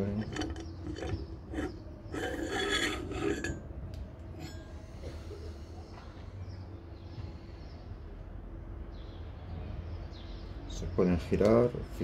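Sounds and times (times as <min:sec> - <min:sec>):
metal rubbing and scraping: 0:00.0 - 0:04.8.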